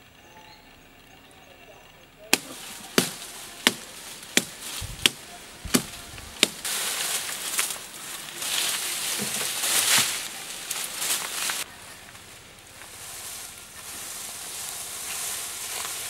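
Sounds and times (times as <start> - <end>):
leaves and branches rustling: 2.2 - 16.0
blade chopping into wood: 2.3 - 6.7.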